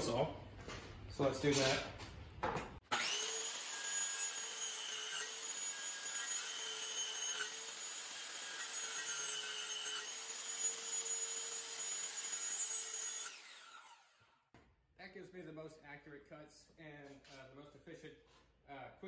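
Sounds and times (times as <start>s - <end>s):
circular saw cutting wood: 2.9s - 14.4s.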